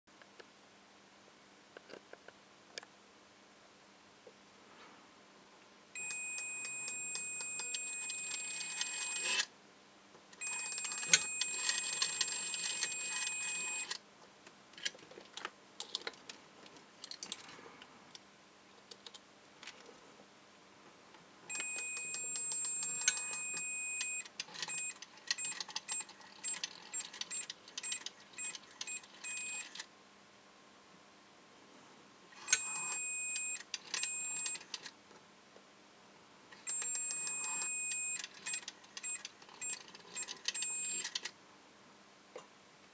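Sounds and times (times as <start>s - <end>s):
multimeter continuity beeps: 6.0s - 9.4s, 10.4s - 14.0s, 21.5s - 29.7s, 32.4s - 34.7s, 36.7s - 41.1s
rotary dial clicks and rattles: 24.0s - 29.8s, 36.6s - 41.3s.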